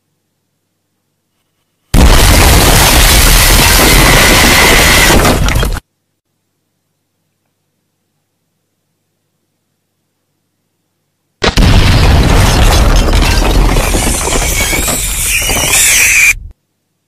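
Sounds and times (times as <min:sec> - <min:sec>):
explosion blast: 0:02.0 - 0:05.8, 0:11.4 - 0:15.9.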